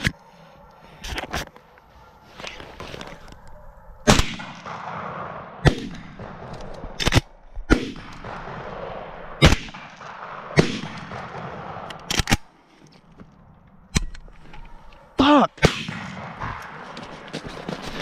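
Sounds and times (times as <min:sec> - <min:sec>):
shotgun shots with echo: 0:04.1 - 0:12.4, 0:15.6 - 0:17.3.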